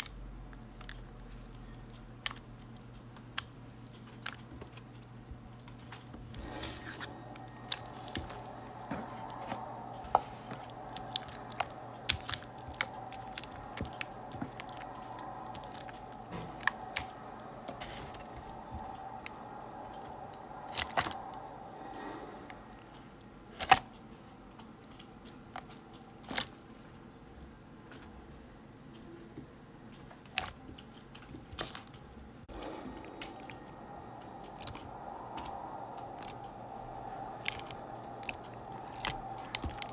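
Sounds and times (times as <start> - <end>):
slime squishing: 0.0 - 4.9, 6.1 - 23.9, 32.6 - 39.9.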